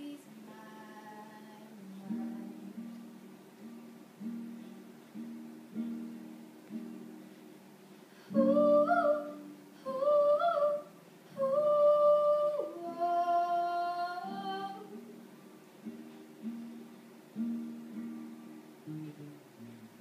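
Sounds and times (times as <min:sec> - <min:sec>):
girl singing: 0:00.0 - 0:03.0, 0:08.2 - 0:15.2
acoustic guitar chords: 0:00.0 - 0:20.0.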